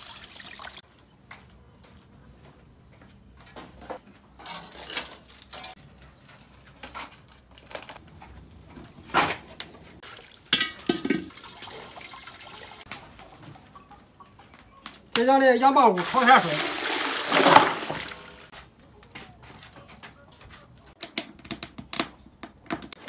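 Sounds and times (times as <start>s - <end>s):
tap water pouring into metal wok: 0.0s - 0.8s, 10.0s - 12.8s, 16.0s - 18.4s.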